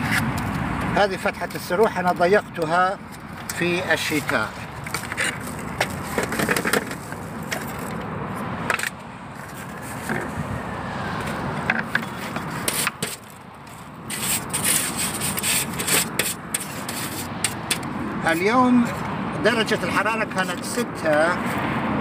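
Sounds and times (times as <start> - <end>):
metal tool scraping wood and mesh: 3.1 - 8.0, 11.2 - 19.1.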